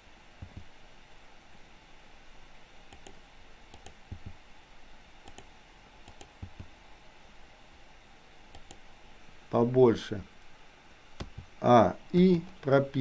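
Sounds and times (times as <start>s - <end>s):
faint room hiss: 0.0s - 13.0s
mouse and keyboard clicks: 2.9s - 4.4s, 5.2s - 5.5s, 6.1s - 6.7s, 8.5s - 8.8s, 11.2s - 11.5s.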